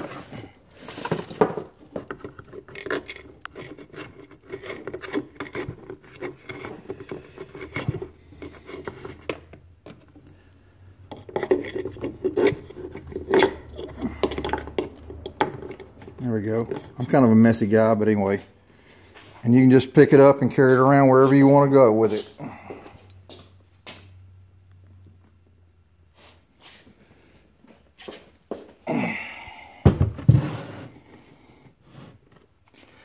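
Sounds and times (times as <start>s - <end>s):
power cord rubbing and scraping: 2.0s - 10.2s.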